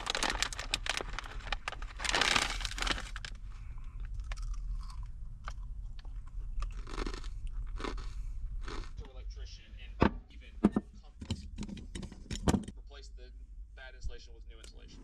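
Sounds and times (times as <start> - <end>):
chip bag rustling: 0.0 - 3.4
chips crunching: 0.0 - 3.4, 4.0 - 9.0.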